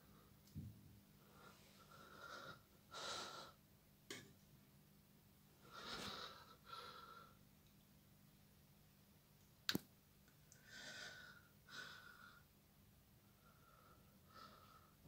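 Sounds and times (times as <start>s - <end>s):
soft breathing: 1.2s - 3.6s, 5.6s - 7.4s, 10.6s - 12.5s, 13.2s - 15.0s.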